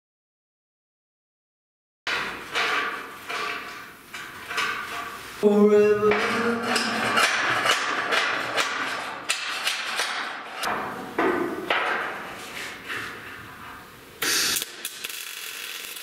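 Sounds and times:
steel knocking and clanking: 0:02.1 - 0:05.2, 0:06.0 - 0:12.3.

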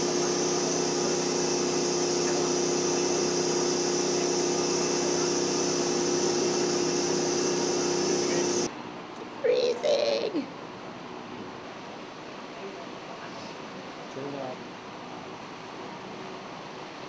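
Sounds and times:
hiss of spray gun: 0:00.0 - 0:08.7
spray machine motor hum: 0:00.0 - 0:08.7.

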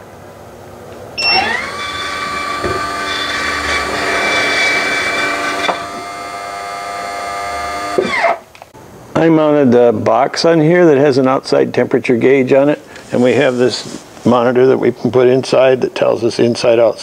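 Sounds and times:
vent fan motor whine: 0:00.0 - 0:09.2
short high beep: 0:01.2 - 0:01.5.

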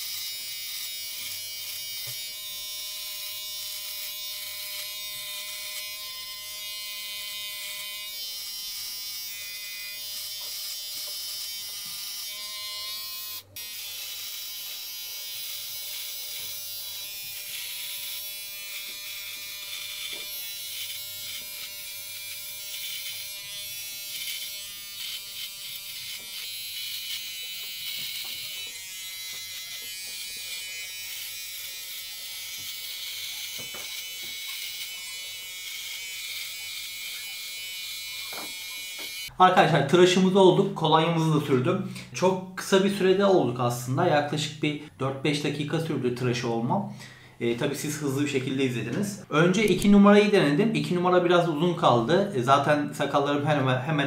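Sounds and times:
beard trimmer buzzing: 0:00.0 - 0:39.4, 0:49.6 - 0:50.4.

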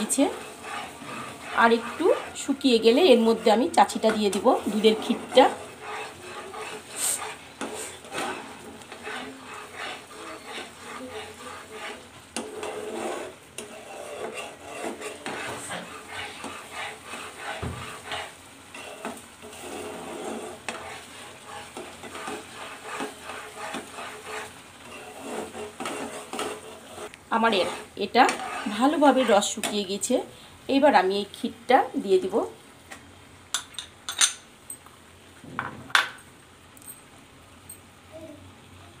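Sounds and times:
spatula scraping a frying pan: 0:00.0 - 0:30.4.

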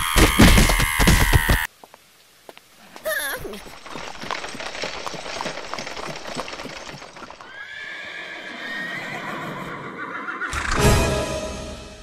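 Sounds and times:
hooves clip-clopping: 0:00.0 - 0:08.1
horse neighing: 0:07.4 - 0:10.7.

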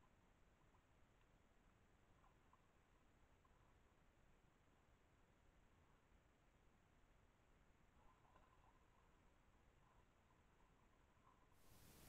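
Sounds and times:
microphone hiss: 0:11.6 - 0:12.0.

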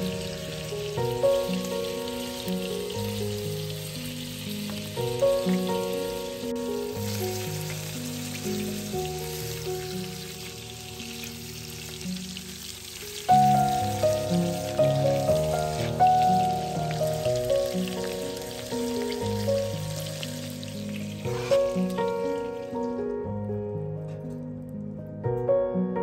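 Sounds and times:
fish sizzling in a frying pan: 0:00.0 - 0:23.1
background music: 0:00.0 - 0:26.0.

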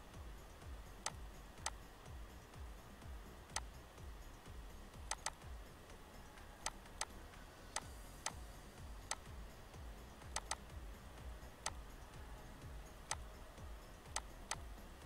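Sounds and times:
computer mouse clicking: 0:01.0 - 0:01.8, 0:05.1 - 0:05.4, 0:06.6 - 0:08.4, 0:09.0 - 0:09.3, 0:10.2 - 0:10.7, 0:11.6 - 0:11.8, 0:13.0 - 0:13.3, 0:14.1 - 0:14.6.

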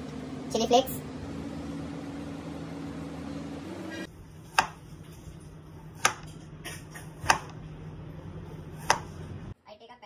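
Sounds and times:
knife chopping carrot on board: 0:04.5 - 0:04.8, 0:05.9 - 0:07.6, 0:08.7 - 0:09.2.

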